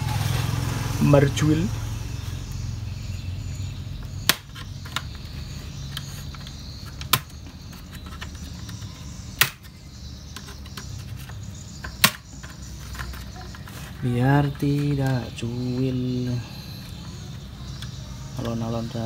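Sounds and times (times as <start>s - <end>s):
plastic clips snapping: 6.0s - 7.4s, 8.0s - 9.8s, 11.8s - 13.2s.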